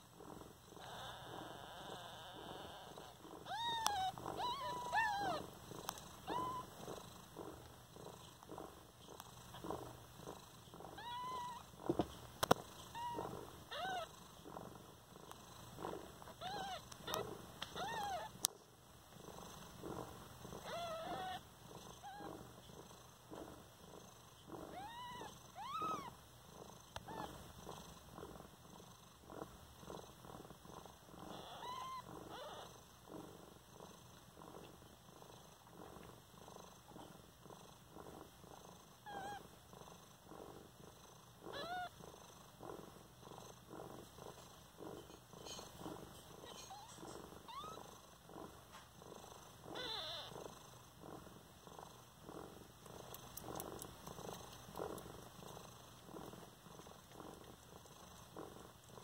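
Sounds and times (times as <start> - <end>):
cat purring: 0.0 - 59.0
kittens squeaking: 0.8 - 6.8, 11.0 - 11.7, 12.9 - 14.1, 16.3 - 18.4, 20.6 - 21.4, 24.7 - 26.1, 27.0 - 27.4, 31.3 - 32.7, 39.1 - 39.4, 41.5 - 41.9, 46.4 - 47.9, 49.7 - 50.4.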